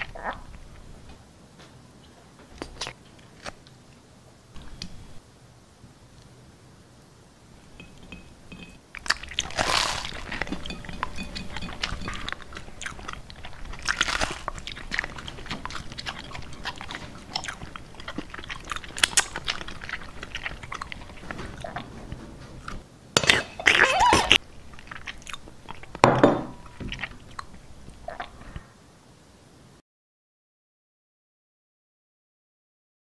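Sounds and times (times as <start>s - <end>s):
crunching and chewing food: 2.5s - 4.0s, 7.8s - 28.7s.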